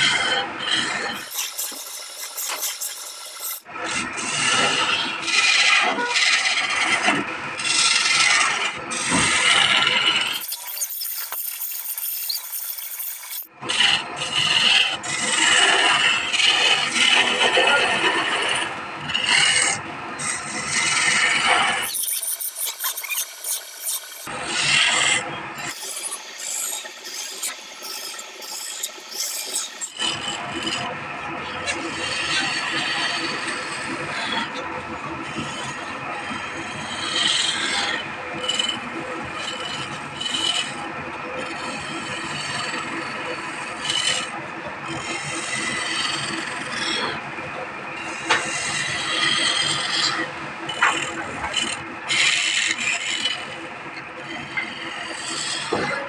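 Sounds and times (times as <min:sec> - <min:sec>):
turning tool scraping spinning wood: 0:00.0 - 0:30.9, 0:47.9 - 0:53.6, 0:54.2 - 0:56.0
chisel shaving wood on lathe: 0:00.0 - 0:56.0.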